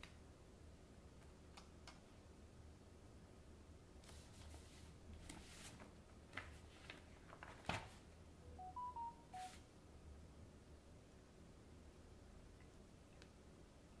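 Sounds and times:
short electronic beeps: 8.5 - 9.6.

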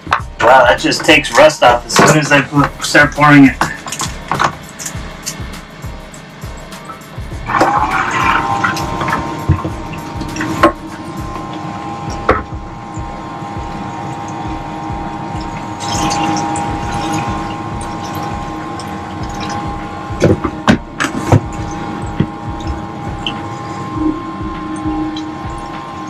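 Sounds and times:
electric pump humming: 0.0 - 26.0
liquid pouring and splashing: 7.4 - 12.6, 15.5 - 23.7.

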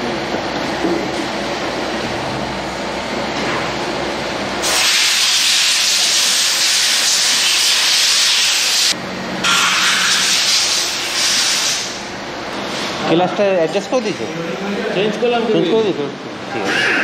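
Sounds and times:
high-pressure jet hissing: 4.6 - 12.0.

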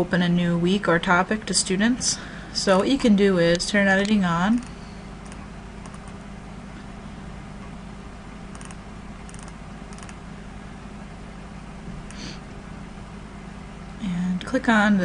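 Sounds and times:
room tone hum and hiss: 0.0 - 15.0
computer mouse clicks: 4.6 - 6.2, 8.5 - 10.2.

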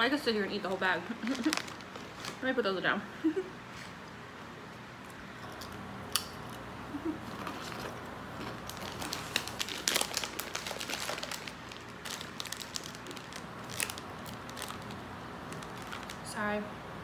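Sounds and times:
chip bag crackling: 0.7 - 2.6, 6.4 - 16.5.

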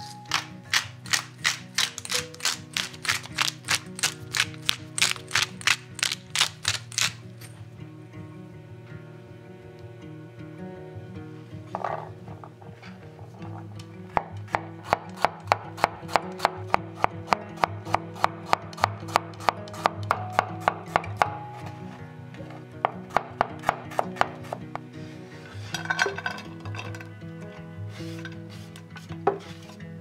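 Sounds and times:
knife strikes on wooden board: 14.2 - 21.4, 22.8 - 24.6.

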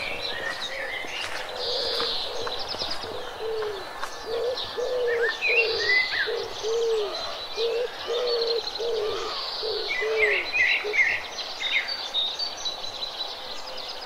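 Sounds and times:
bird cooing: 0.0 - 11.1.

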